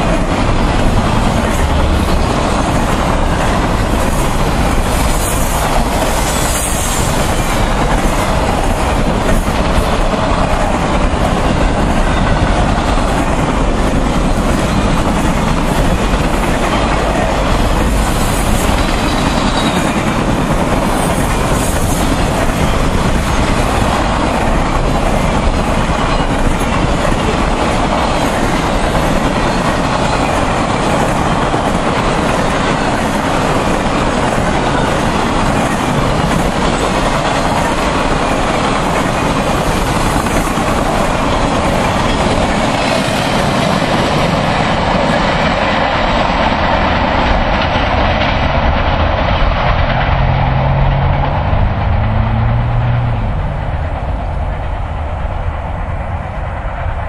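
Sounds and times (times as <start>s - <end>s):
rail trailers rumbling past: 0.0s - 57.0s
low hum: 49.4s - 55.6s.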